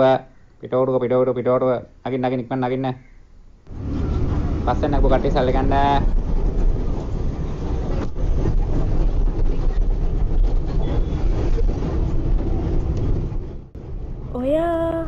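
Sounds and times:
road noise: 3.6 - 15.0
bus engine rumble: 3.7 - 15.0.

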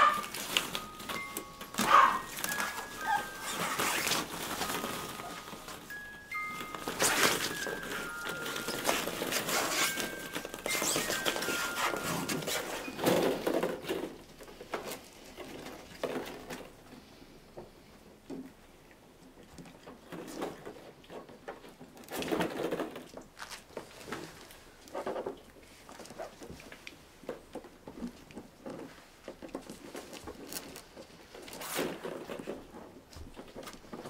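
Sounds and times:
tinkling tune: 0.0 - 13.6
plastic balls clattering: 0.0 - 16.7.

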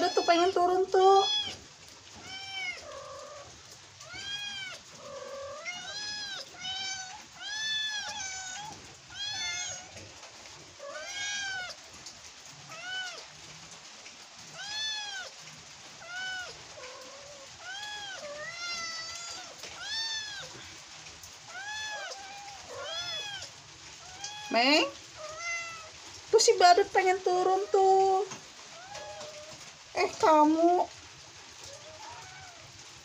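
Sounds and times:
cat meowing: 0.0 - 10.1, 10.7 - 11.9, 12.6 - 13.4, 14.5 - 15.4, 16.0 - 20.8, 21.4 - 26.1, 27.6 - 29.7, 31.6 - 32.8.

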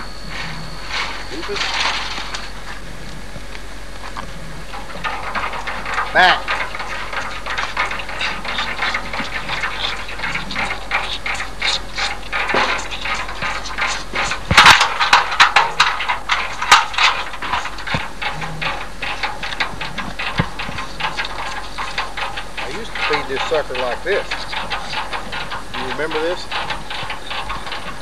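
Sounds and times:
calves sucking at nursing bottles: 4.0 - 15.4.

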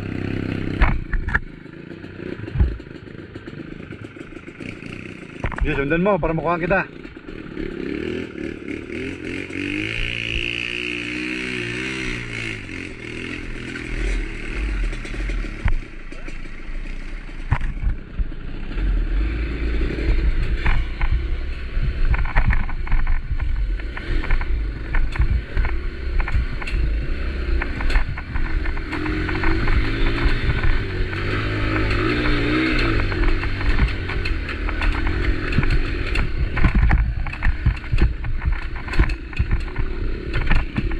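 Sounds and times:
motorcycle engine running: 0.0 - 40.9
sharp knocks and rattles: 11.4 - 18.8, 19.6 - 40.9.

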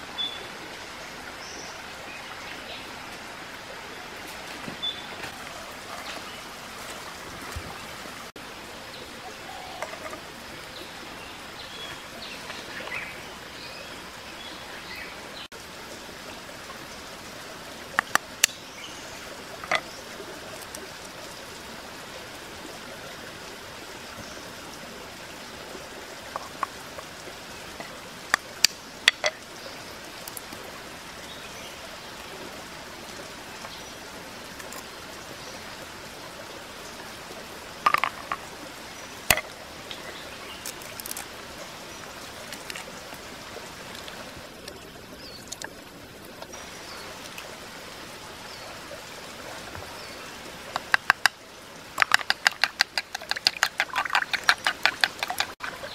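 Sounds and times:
creek water running: 0.0 - 55.9
eggs tapped on clay dish rim: 52.0 - 55.7.

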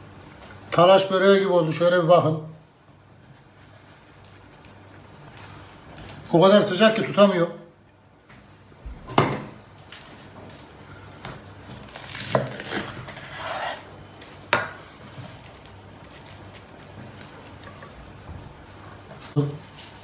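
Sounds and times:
knife cutting crisp pastry crust: 11.7 - 13.9.

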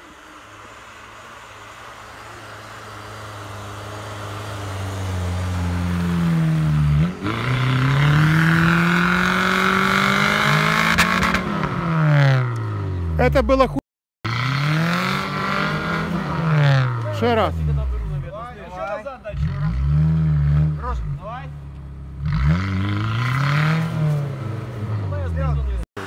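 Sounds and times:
engine revving hard: 4.2 - 12.7, 14.3 - 17.8, 19.3 - 21.4, 22.2 - 25.6.

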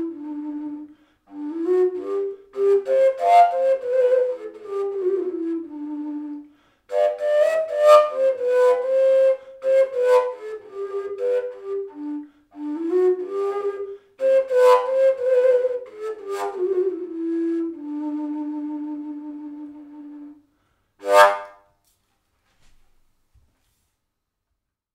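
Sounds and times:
breathy flute note: 0.0 - 21.6
wooden flute melody: 0.0 - 21.7.

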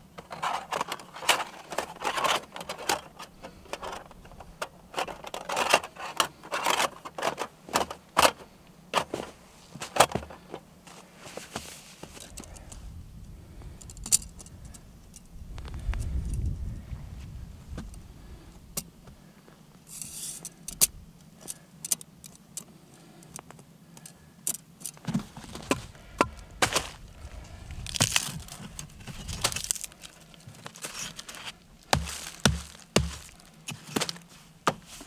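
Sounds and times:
crunching and rustling: 0.0 - 12.8, 24.8 - 35.0
firewood knocking together: 31.9 - 34.9
dull thumps: 31.9 - 35.0.

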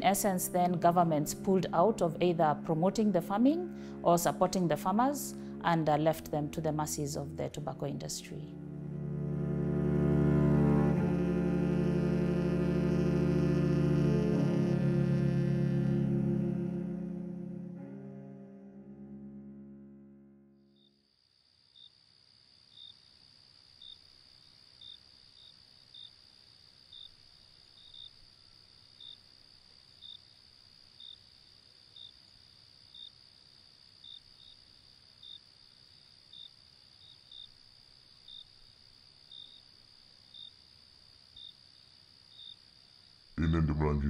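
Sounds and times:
insect chirp: 20.7 - 43.4
high-pitched insect trill: 22.7 - 43.2.

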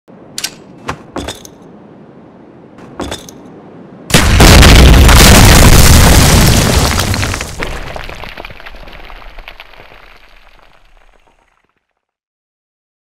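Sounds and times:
loud explosion blast rumbling: 4.1 - 9.0.

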